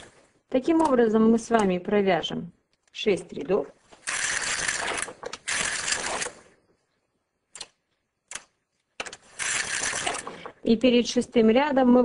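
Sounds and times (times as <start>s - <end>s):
knitting machine carriage rattling: 4.0s - 6.4s, 9.0s - 10.5s.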